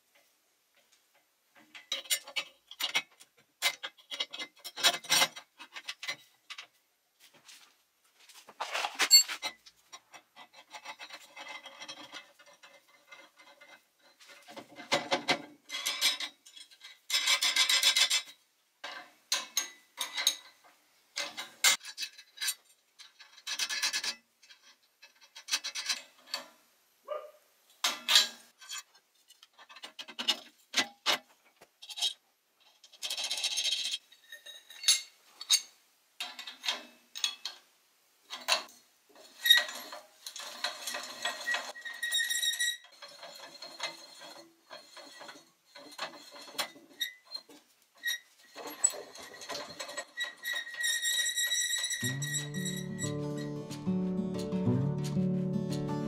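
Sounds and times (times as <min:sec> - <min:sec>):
metal scraping: 0:39.2 - 0:56.0
sharp metal clinks: 0:52.0 - 0:53.5.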